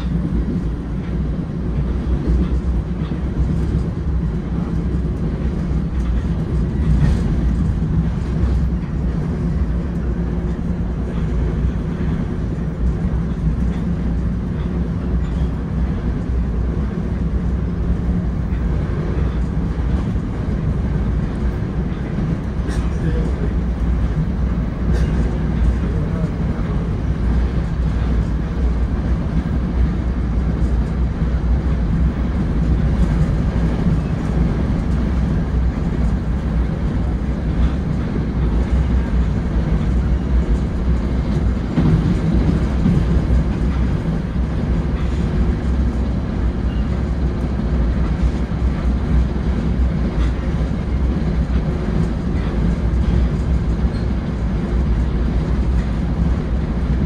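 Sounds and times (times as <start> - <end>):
train coach rumble and hum: 0.0 - 57.0.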